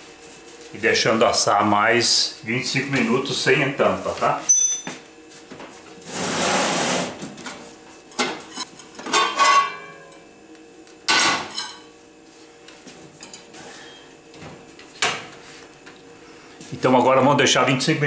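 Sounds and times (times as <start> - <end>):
metal pot lid clanking: 9.1 - 10.0.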